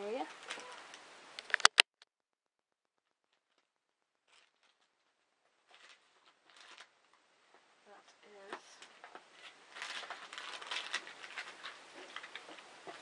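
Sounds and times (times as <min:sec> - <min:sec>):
sharp click: 0:01.4 - 0:02.1
faint rustling and handling ticks: 0:03.5 - 0:13.0.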